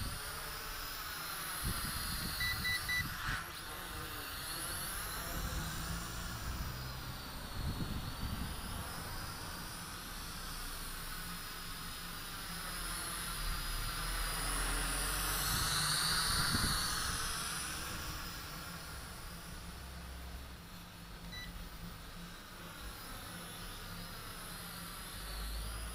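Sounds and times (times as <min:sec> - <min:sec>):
drone motors whining: 0:00.0 - 0:25.9.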